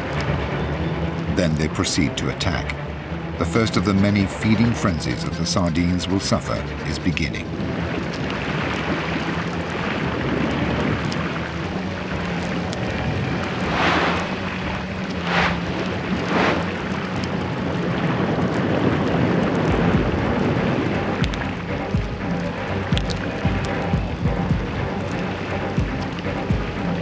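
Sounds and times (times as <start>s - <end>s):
underwater churning water: 4.1s - 27.0s
short whooshes: 13.6s - 14.4s, 15.1s - 16.8s.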